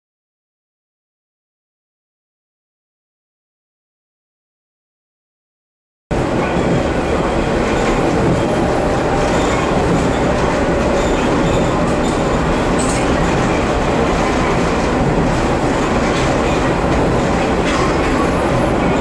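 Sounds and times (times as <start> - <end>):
wheels rumbling on rails: 6.1 - 19.0.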